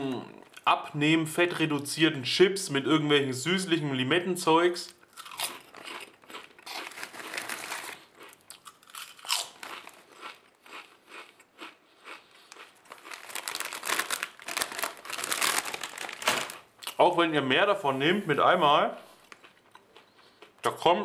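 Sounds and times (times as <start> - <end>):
potato chips crunching: 5.0 - 17.0
foil bag crinkling: 5.5 - 8.2, 9.0 - 10.2, 12.6 - 16.7.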